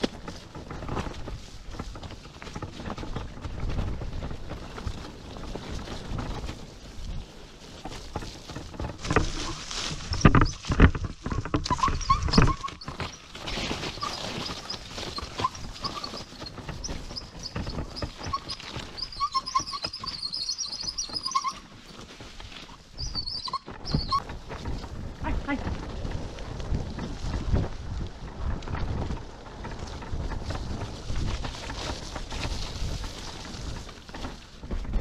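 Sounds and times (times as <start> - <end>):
wheels rolling over dirt trail: 0.0 - 35.0
knocks and thumps from bumps: 8.1 - 21.4.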